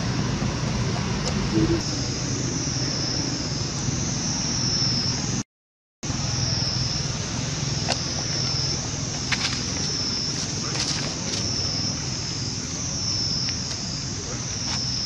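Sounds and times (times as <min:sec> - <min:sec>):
high steady drone: 0:00.0 - 0:05.4, 0:06.0 - 0:15.0
low rumble: 0:00.0 - 0:05.4.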